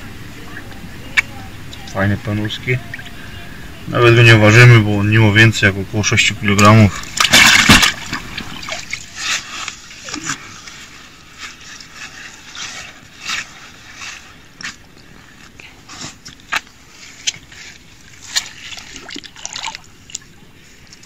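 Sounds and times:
water splashing and sloshing: 0:06.0 - 0:21.0.

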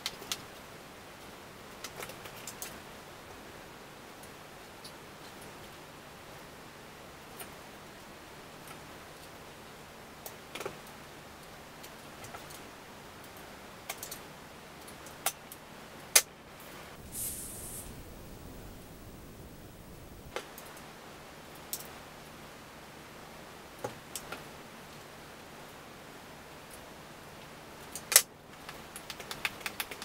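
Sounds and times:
short hiss: 0:16.7 - 0:20.4.

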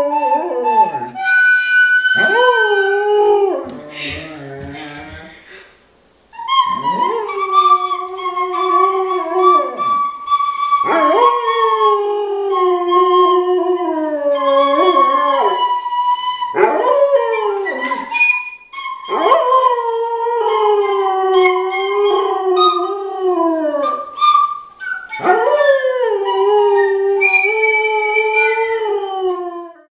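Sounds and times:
small wind instrument playing: 0:00.0 - 0:05.6, 0:06.3 - 0:29.9
dog howling: 0:02.2 - 0:05.3, 0:06.7 - 0:10.0, 0:10.8 - 0:15.7, 0:16.5 - 0:18.2, 0:25.0 - 0:29.9.

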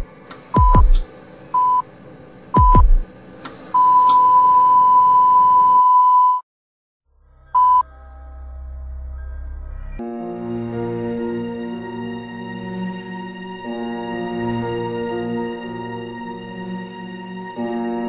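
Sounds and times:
deep thump dropping in pitch: 0:00.6 - 0:01.0, 0:02.6 - 0:03.0
electronic beeps: 0:01.6 - 0:01.8, 0:07.6 - 0:07.8.

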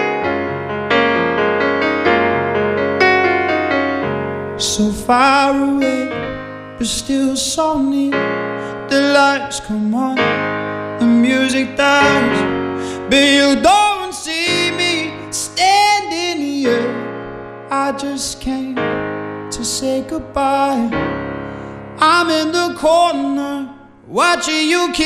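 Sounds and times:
piano chords: 0:00.0 - 0:25.0
man singing a slow ballad: 0:04.6 - 0:25.0.

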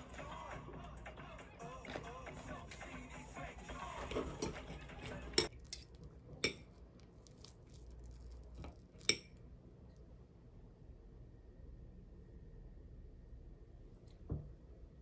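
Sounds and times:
cutlery clinking on glass plate: 0:04.0 - 0:06.7.

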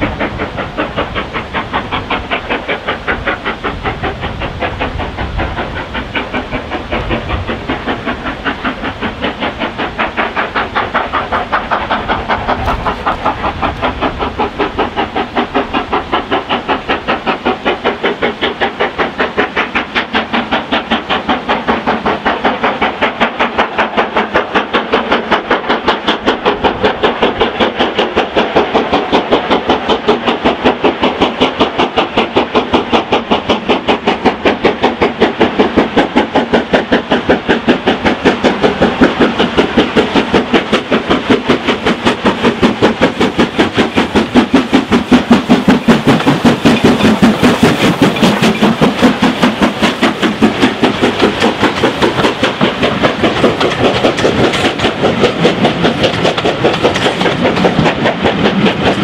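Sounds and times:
steam locomotive exhaust beating: 0:00.0 - 0:59.0.

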